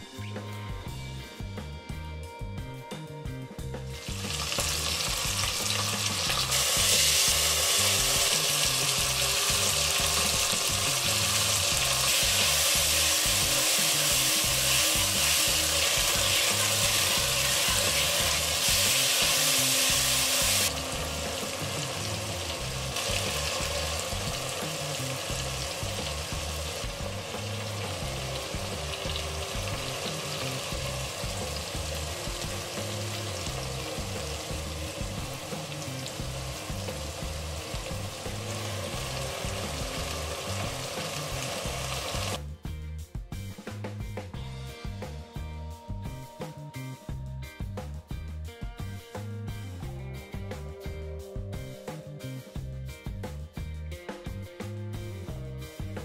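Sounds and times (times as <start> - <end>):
faint background music: 0.0 - 56.0
food sizzling in hot oil: 3.8 - 42.4.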